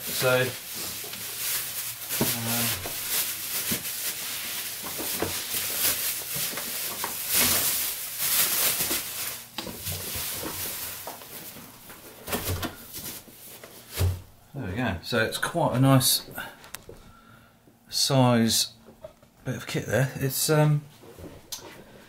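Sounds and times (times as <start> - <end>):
bubble wrap crinkling: 0.0 - 14.1.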